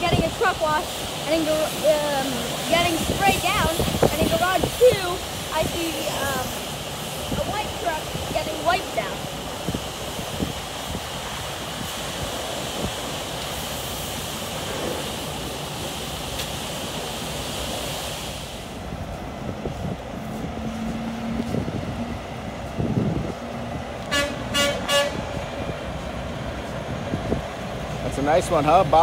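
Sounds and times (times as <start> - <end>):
truck engine running: 0.0 - 29.0
water spraying: 0.0 - 29.0
truck horn toots: 24.0 - 25.3.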